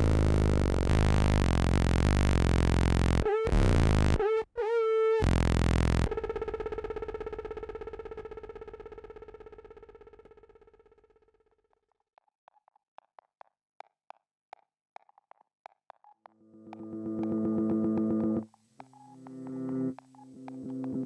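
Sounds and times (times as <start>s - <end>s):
buzzing synthesizer drone: 0.0s - 4.3s, 5.2s - 6.1s
rapidly pulsing tone: 0.0s - 4.3s, 5.2s - 6.2s.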